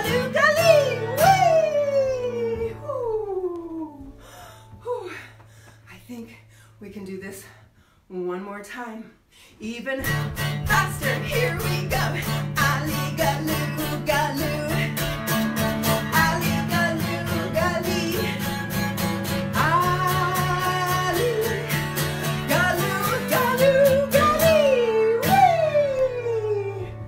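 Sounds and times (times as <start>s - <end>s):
acoustic guitar strumming: 0.0s - 2.8s, 10.0s - 27.0s.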